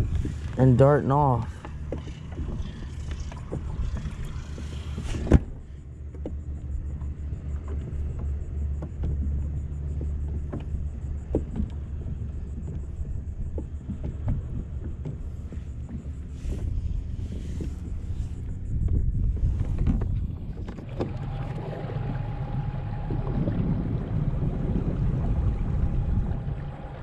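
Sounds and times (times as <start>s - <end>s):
wind rumbling on microphone: 0.0s - 27.0s.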